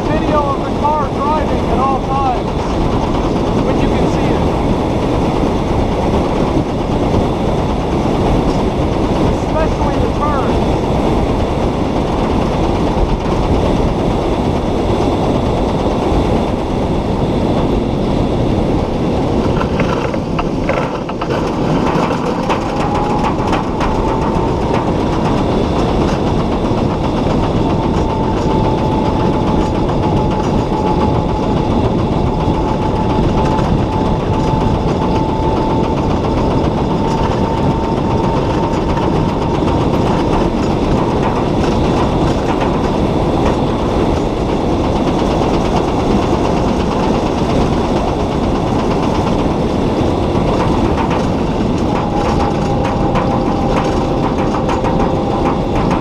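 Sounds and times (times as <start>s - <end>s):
faint whine: 0.0s - 56.0s
wind and road noise: 0.0s - 56.0s
rattles and knocks: 19.3s - 56.0s.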